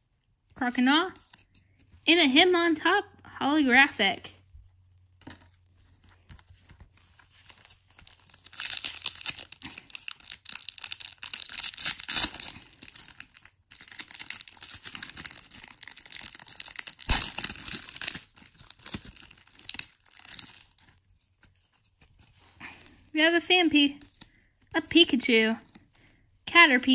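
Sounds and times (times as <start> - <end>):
foil wrapper tearing and crinkling: 7.4 - 21.1.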